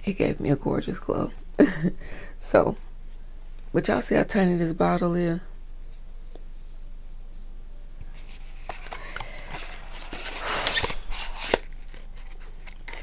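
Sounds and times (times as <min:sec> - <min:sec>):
packaging rustling: 0:08.2 - 0:13.0.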